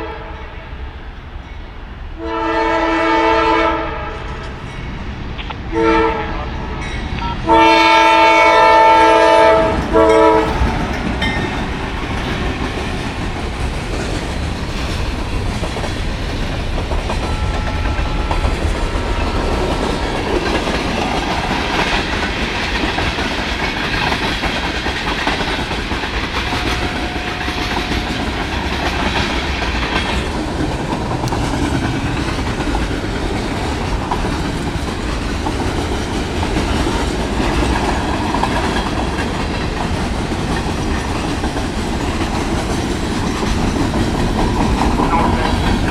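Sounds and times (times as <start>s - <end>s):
locomotive air horn: 0.0s - 0.6s, 2.2s - 4.4s, 5.7s - 10.6s, 17.3s - 18.6s
train wheels clacking over rail joints: 6.8s - 45.9s.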